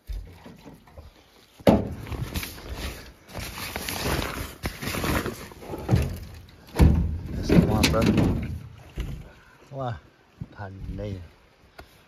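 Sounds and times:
canvas tarp rustling and scraping: 0:01.4 - 0:07.9.

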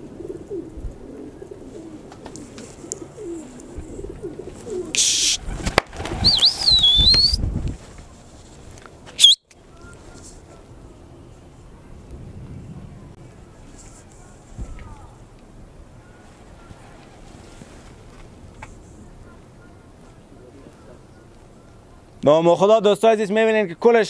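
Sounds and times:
pigeons cooing: 0:00.0 - 0:07.4, 0:16.0 - 0:18.3
pigeon wings flapping: 0:02.0 - 0:08.1, 0:16.3 - 0:18.3
wavering high whistle: 0:06.2 - 0:07.4, 0:09.2 - 0:09.4.

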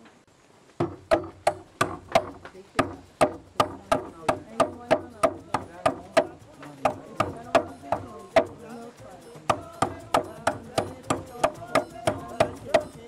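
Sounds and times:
knife chopping on wood: 0:00.8 - 0:07.4.

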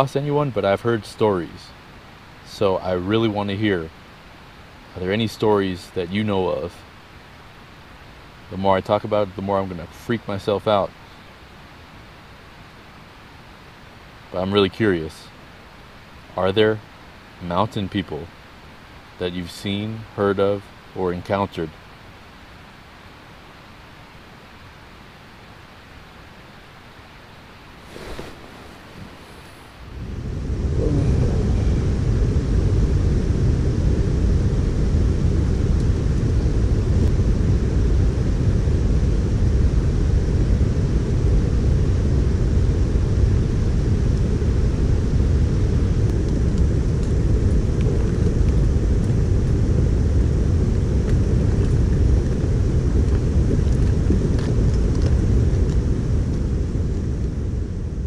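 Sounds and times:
loud low rumbling: 0:27.9 - 0:58.0.

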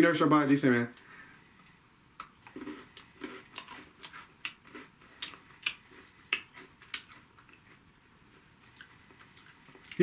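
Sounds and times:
cookie crunching while chewing: 0:02.2 - 0:07.8, 0:08.7 - 0:10.0
wet mouth clicks: 0:05.2 - 0:07.6, 0:08.8 - 0:10.0.

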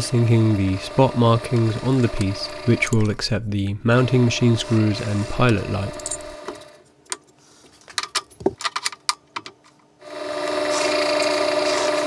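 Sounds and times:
drill press motor humming: 0:00.0 - 0:03.2, 0:03.9 - 0:06.8, 0:10.0 - 0:12.0.

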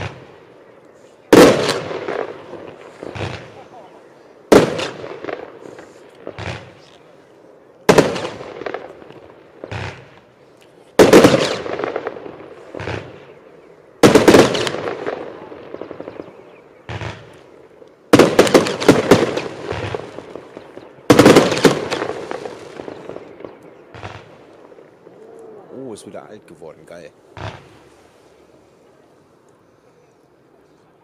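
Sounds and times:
firework sharp bangs: 0:00.0 - 0:00.6, 0:01.3 - 0:06.9, 0:07.8 - 0:10.3, 0:11.0 - 0:24.9, 0:27.3 - 0:28.1.

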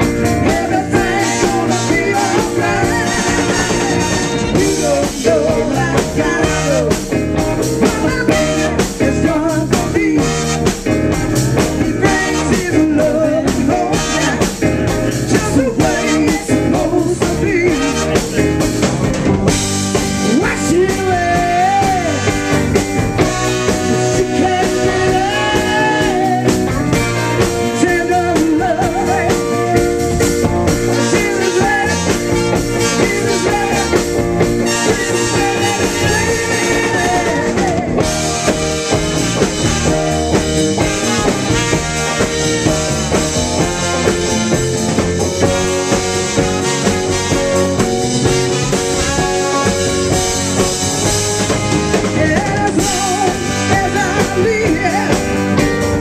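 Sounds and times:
drums: 0:00.0 - 0:56.0
guitar: 0:00.0 - 0:56.0
trombone and saxophone horns: 0:00.0 - 0:56.0
woman singing lead: 0:00.2 - 0:07.2, 0:23.9 - 0:26.8, 0:27.8 - 0:30.2, 0:30.9 - 0:38.3.

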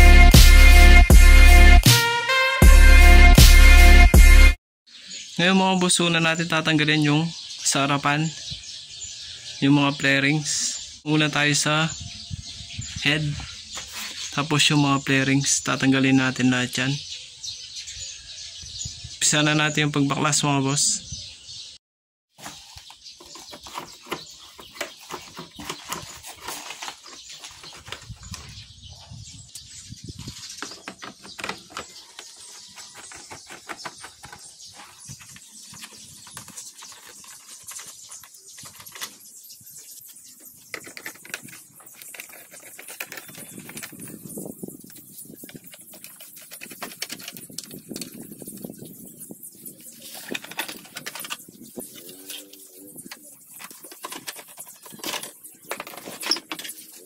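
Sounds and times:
screwdriver clicking and scraping: 0:40.7 - 0:44.1.

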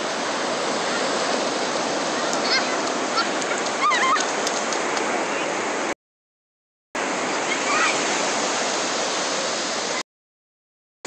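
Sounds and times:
ocean surf rushing: 0:00.0 - 0:06.0, 0:07.0 - 0:10.0.

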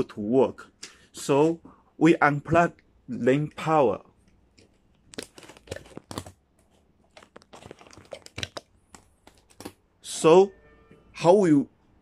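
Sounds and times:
plugs clicking and knocking: 0:04.6 - 0:09.8.

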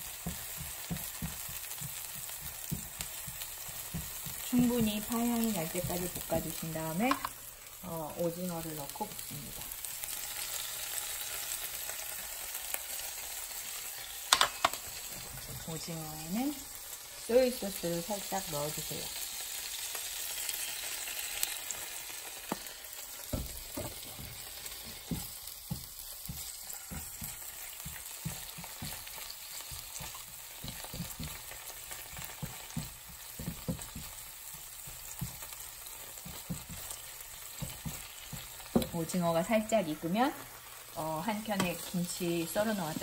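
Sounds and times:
spatula scraping and knocking pan: 0:00.0 - 0:07.4, 0:14.0 - 0:15.8, 0:22.4 - 0:40.1
food sizzling in oil: 0:00.0 - 0:43.0.

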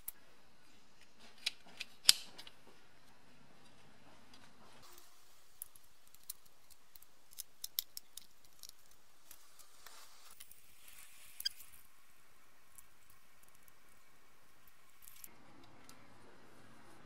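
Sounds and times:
lamp parts clicking: 0:01.4 - 0:02.6, 0:05.5 - 0:09.6.

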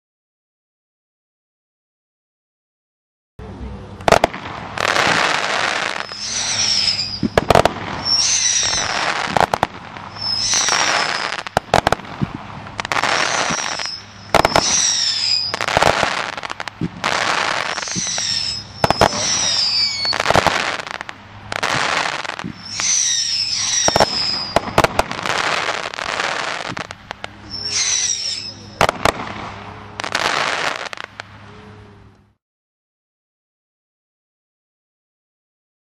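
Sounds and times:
firework crackling: 0:04.0 - 0:32.1
firework bangs with whistle: 0:04.1 - 0:31.2.

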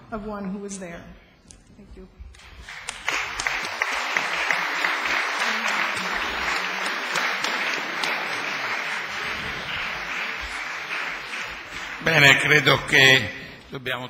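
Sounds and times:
audience applauding: 0:02.4 - 0:13.4.

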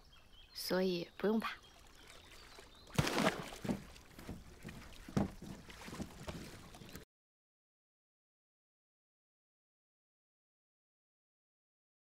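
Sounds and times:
smaller water splashes: 0:01.4 - 0:07.0
metal ball splashing into water: 0:02.9 - 0:03.9
knocks on wooden boat: 0:03.0 - 0:06.5.

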